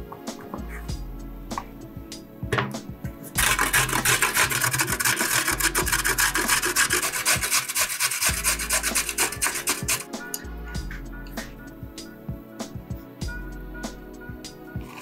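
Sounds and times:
carrot grating on metal grater: 3.4s - 10.1s.

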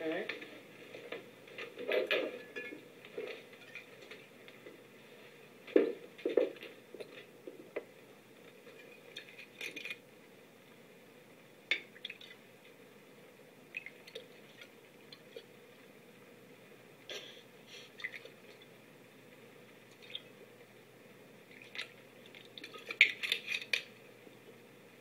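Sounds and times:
glass bottle and glasses clinking: 2.1s - 2.8s.

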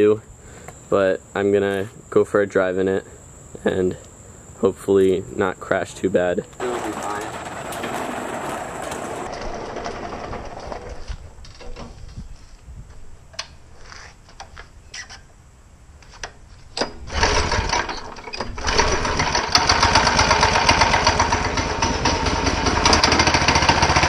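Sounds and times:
small engine running: 6.6s - 11.0s, 17.1s - 17.9s, 18.5s - 24.0s.

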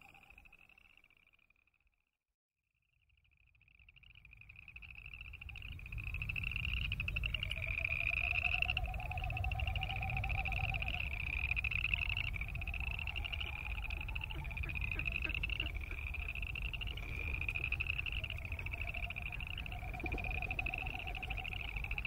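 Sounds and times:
frogs trilling: 0.0s - 1.6s, 3.1s - 22.0s
lower pulsing frog call: 0.0s - 1.6s, 3.1s - 22.0s
steady low rumble: 10.4s - 22.0s.

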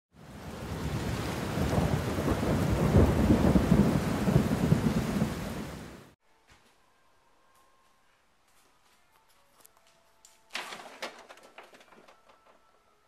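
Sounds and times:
rain hiss: 0.2s - 6.2s
rolling thunder: 0.2s - 6.2s.

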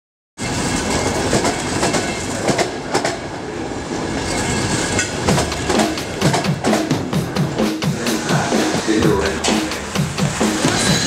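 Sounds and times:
clacks over rail joints: 0.4s - 3.3s, 3.9s - 7.6s
train wheels rumbling on rails: 0.4s - 11.0s.

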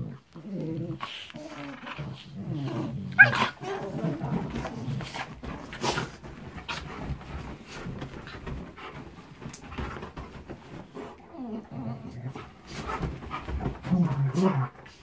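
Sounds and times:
dogs scuffling on bedding: 3.2s - 11.2s, 12.3s - 15.0s
dogs panting: 3.4s - 11.4s, 12.2s - 15.0s.

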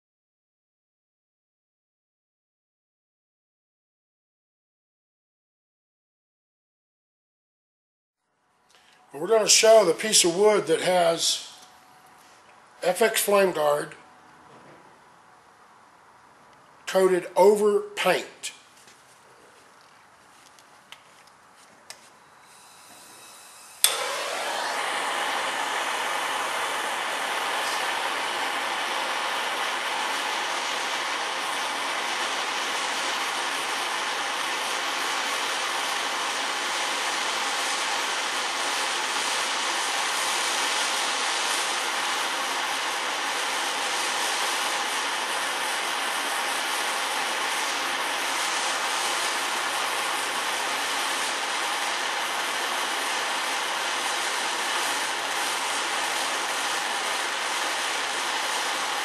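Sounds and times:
blowtorch flame hissing: 22.4s - 59.0s.

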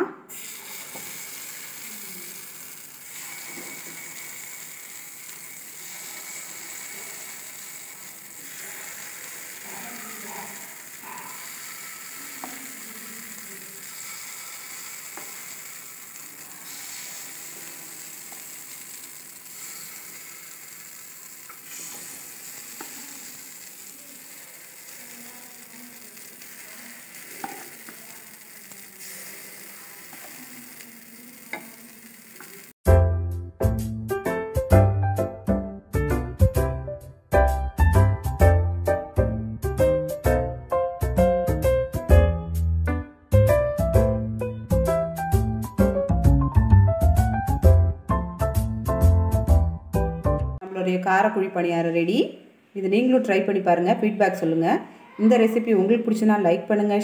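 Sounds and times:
batter sizzling in a pan: 0.3s - 32.8s.

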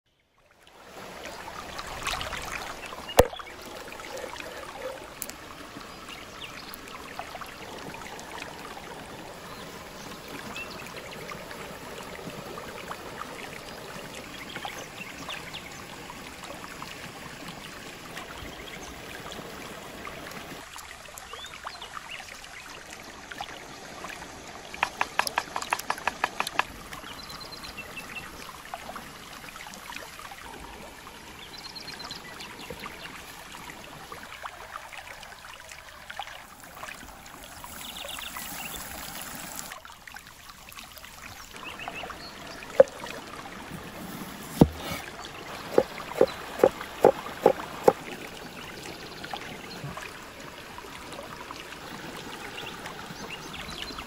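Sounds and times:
stream flowing: 0.2s - 54.0s
knife cutting onion on wooden board: 44.4s - 45.0s, 45.7s - 48.0s.

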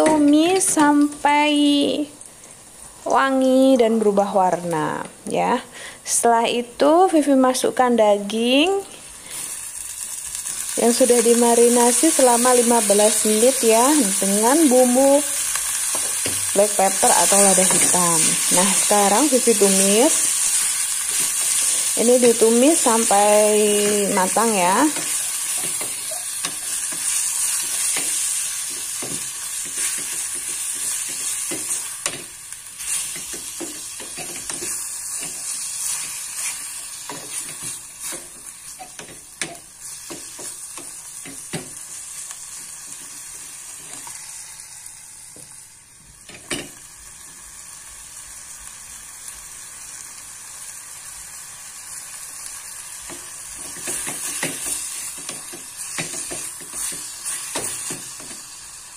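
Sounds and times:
beef sizzling in a pan: 8.4s - 58.9s
spatula scraping and knocking pan: 53.1s - 58.4s.

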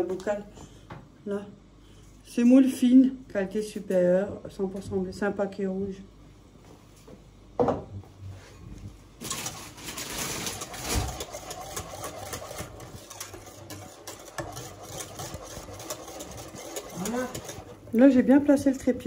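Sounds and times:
whisk scraping a saucepan: 9.3s - 18.3s.

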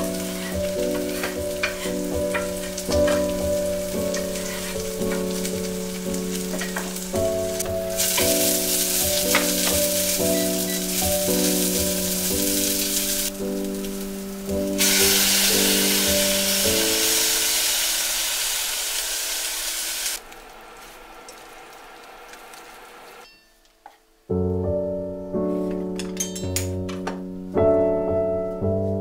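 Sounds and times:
music with slow sustained chords: 0.0s - 18.4s, 24.3s - 29.0s
food sizzling in saucepan: 0.0s - 23.4s.

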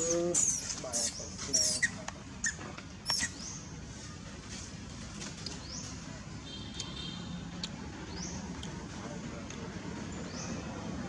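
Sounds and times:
high-pitched animal squeaks: 0.0s - 3.4s
faint outdoor background: 0.0s - 11.0s.

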